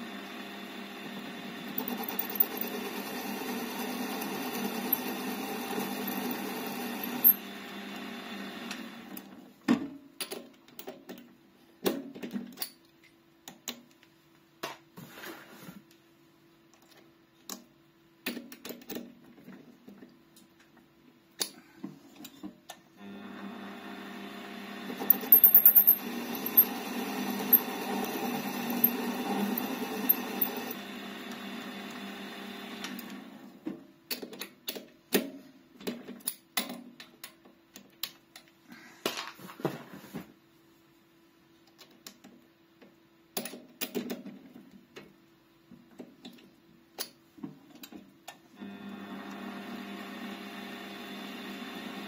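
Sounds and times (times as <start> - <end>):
metal lathe cutting: 26.0 - 32.1.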